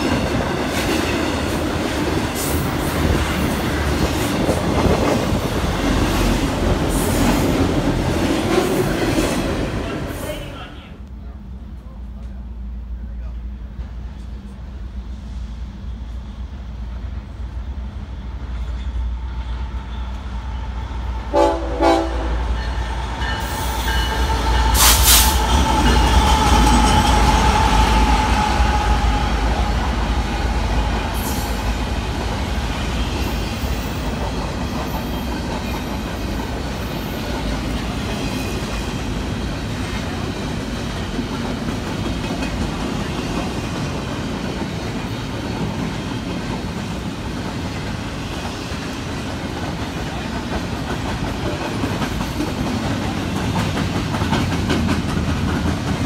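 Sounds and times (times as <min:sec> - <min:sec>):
train cars rumbling and clacking: 0:00.0 - 0:56.0
train horn blasts: 0:21.3 - 0:30.0.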